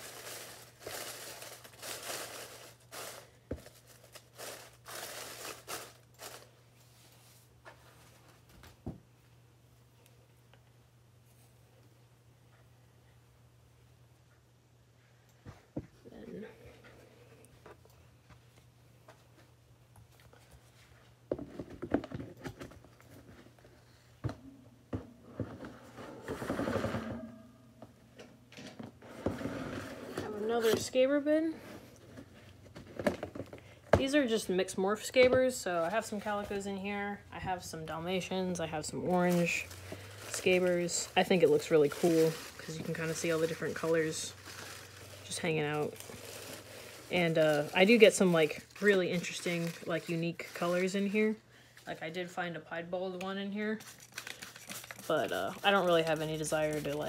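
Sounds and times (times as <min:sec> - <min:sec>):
dry leaves rustling and crunching: 0:00.0 - 0:06.5, 0:39.1 - 0:51.3.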